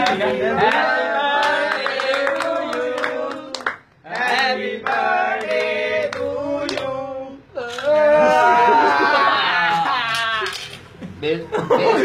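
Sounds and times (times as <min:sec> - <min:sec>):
voices singing together: 0:00.0 - 0:08.5
sharp claps: 0:01.4 - 0:06.8.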